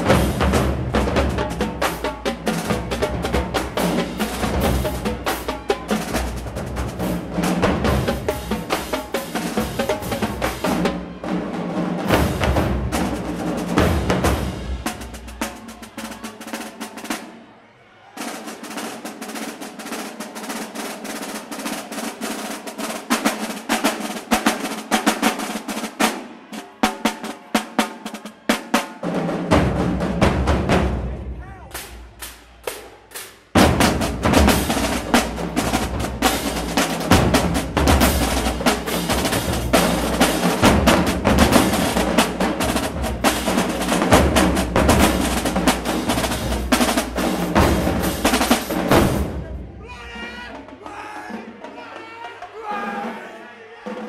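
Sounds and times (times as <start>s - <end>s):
cymbals: 0.0s - 17.4s, 18.2s - 53.2s
snare drum rolls: 0.0s - 17.4s, 18.2s - 53.3s
bass drums: 33.6s - 49.8s.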